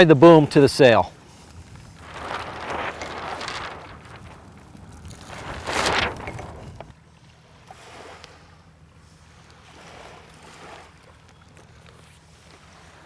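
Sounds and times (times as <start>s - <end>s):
wind gusts on microphone: 1.5s - 6.9s
low rumble: 1.5s - 7.0s.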